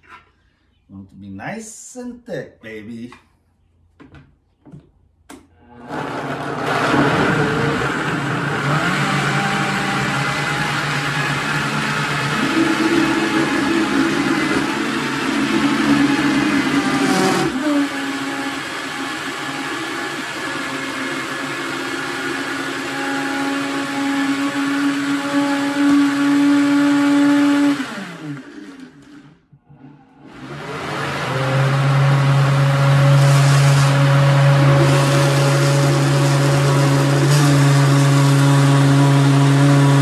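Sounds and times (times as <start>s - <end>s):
blender running: 5.7s - 40.0s.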